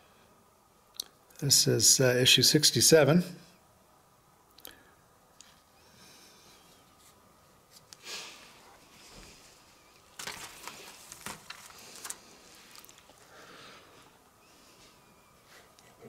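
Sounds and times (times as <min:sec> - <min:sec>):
brief rustle: 0:10.0 - 0:13.2
plastic sleeve crinkling and clicking: 0:10.0 - 0:13.3.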